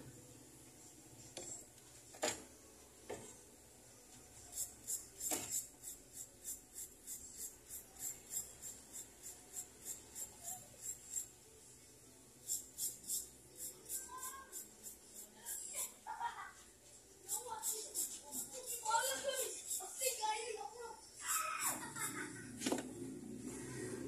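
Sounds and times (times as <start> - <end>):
file rasping on metal: 4.6 - 11.3.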